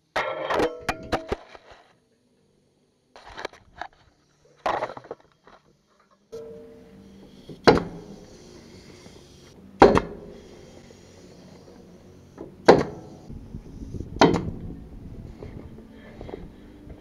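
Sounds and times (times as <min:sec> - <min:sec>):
nail gun firing into wood: 0:07.6 - 0:08.1, 0:09.8 - 0:10.3, 0:12.6 - 0:13.1, 0:14.2 - 0:14.5.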